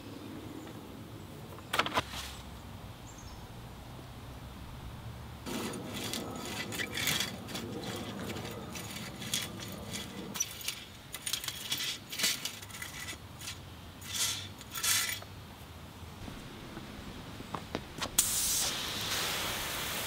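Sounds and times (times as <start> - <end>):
metal rake scratching soil: 5.4 - 15.3.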